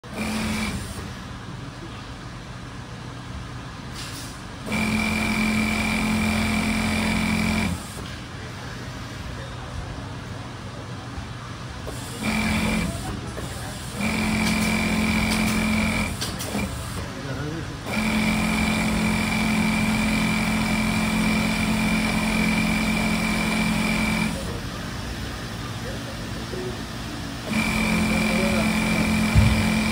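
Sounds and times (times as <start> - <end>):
sewing machine whine: 0.0 - 1.1, 4.6 - 8.0, 12.1 - 13.1, 13.9 - 16.8, 17.8 - 24.8, 27.4 - 29.9
short hiss: 3.9 - 4.4.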